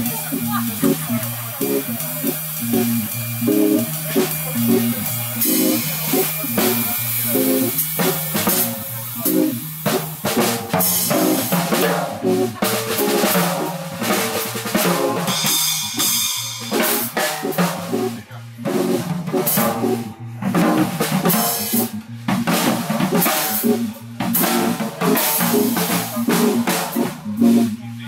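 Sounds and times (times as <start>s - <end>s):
jazz drum solo: 0.0s - 28.0s
repeating keyboard vamp: 0.0s - 28.0s.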